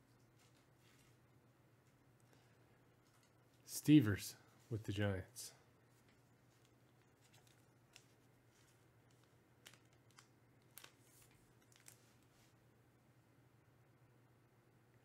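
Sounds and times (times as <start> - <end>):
plastic sleeve rustles and clicks: 5.9 - 12.5.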